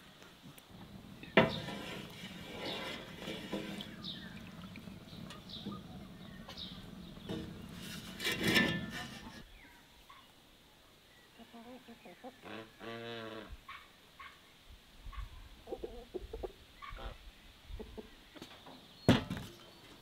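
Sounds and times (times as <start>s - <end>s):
milk swishing: 0.9s - 9.4s.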